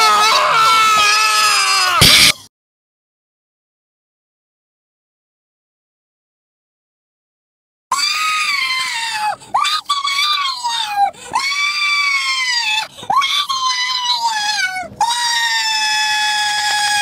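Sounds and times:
woman screaming: 0.0 - 2.3, 7.9 - 17.0.

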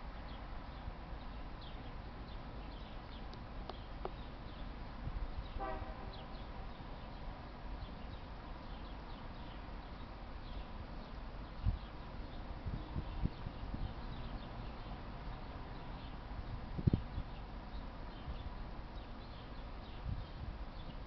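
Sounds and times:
birds chirping: 0.1 - 21.0
distant horn toot: 5.6 - 6.3.

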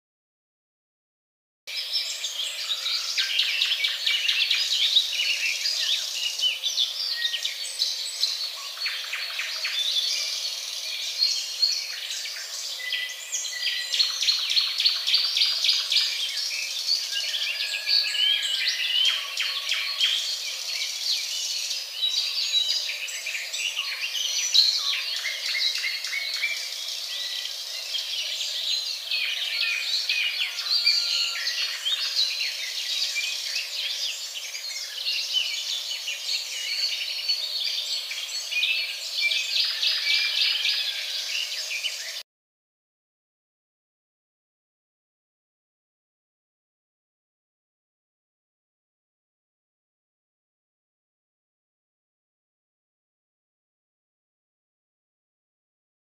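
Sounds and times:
birds chirping and trilling: 1.7 - 42.2.

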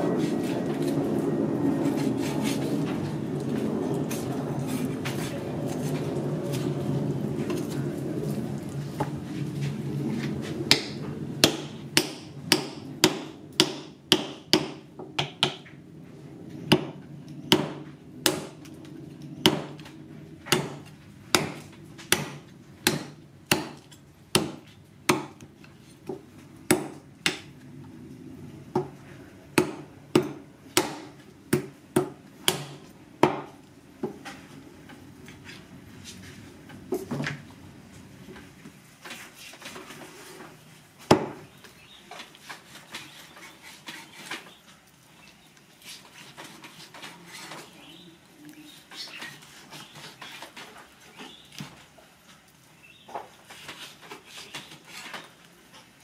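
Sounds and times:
cleaver chopping meat and bone: 10.7 - 15.6, 16.7 - 18.6, 19.4 - 25.5, 26.7 - 27.5, 29.6 - 33.6, 41.1 - 41.4.

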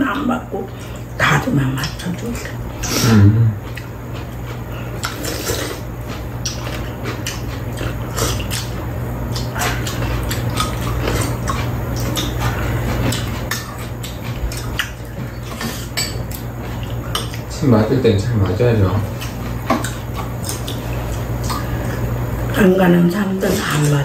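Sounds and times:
people chewing: 0.0 - 24.0
steady low hum: 0.0 - 24.0.

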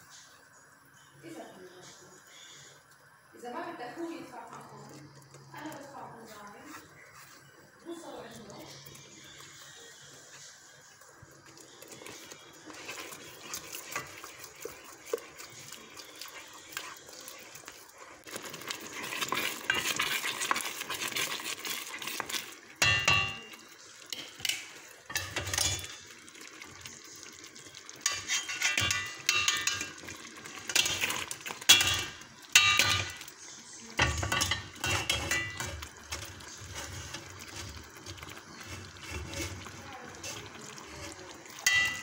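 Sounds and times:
spoon stirring thick sauce: 4.7 - 42.0
metal clinking against pot: 22.8 - 26.0, 28.0 - 33.3, 34.0 - 36.6, 41.5 - 42.0.

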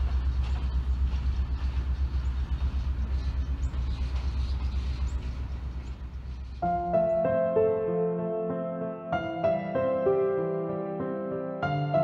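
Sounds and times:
locomotive engine idling: 0.0 - 6.6.

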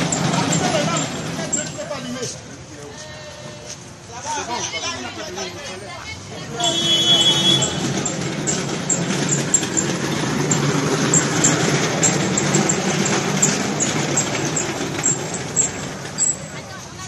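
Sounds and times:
vehicle engine running: 0.0 - 2.2, 6.6 - 17.0.

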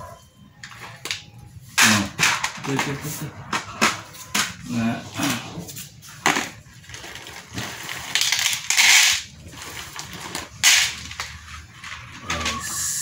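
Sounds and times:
bag crinkling: 5.7 - 12.2.

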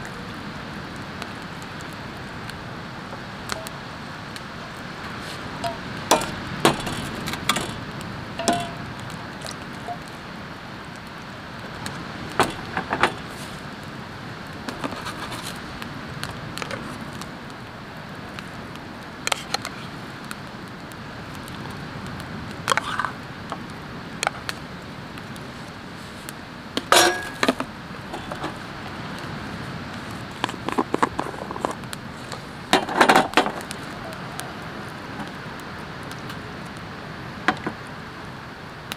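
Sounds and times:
steady background hiss: 0.0 - 38.9
tongs clinking on metal pot: 8.4 - 8.8, 26.9 - 27.4.

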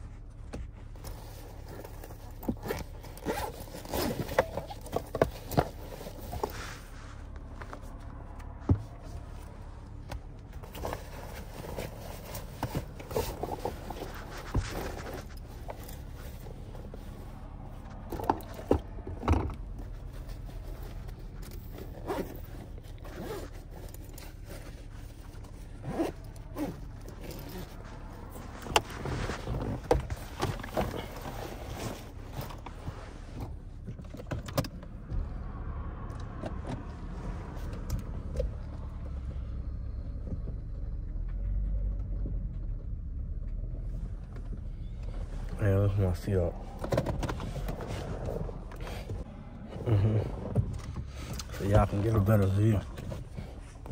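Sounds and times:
car engine running: 0.0 - 53.9
backpack rustling and zipping: 1.4 - 7.0, 10.6 - 17.0, 20.2 - 32.8.

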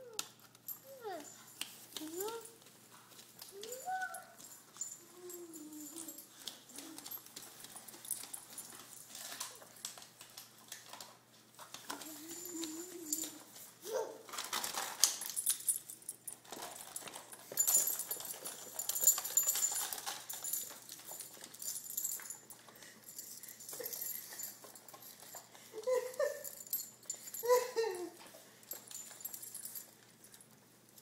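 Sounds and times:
snack package crinkling and rattling: 14.2 - 15.3.

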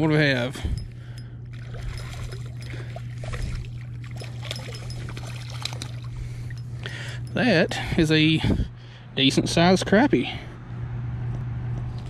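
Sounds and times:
steady low hum: 0.0 - 12.0
water dripping: 1.2 - 7.4
fish splashing at water surface: 1.5 - 6.6.

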